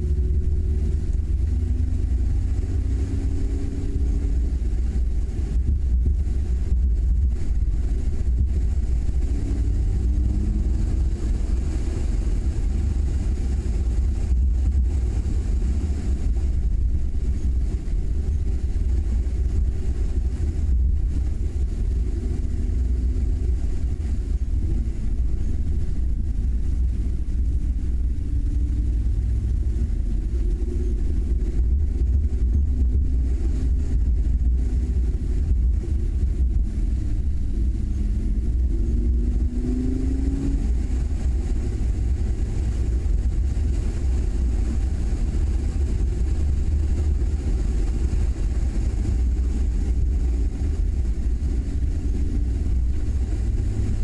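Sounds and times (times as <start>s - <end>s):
car engine: 0.0s - 54.0s
road noise: 0.0s - 54.0s
wind rumble on microphone: 0.0s - 54.0s.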